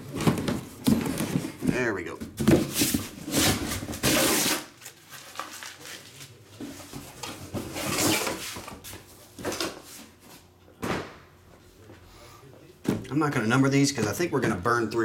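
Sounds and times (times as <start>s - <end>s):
rustling handling noises: 0.0s - 10.5s.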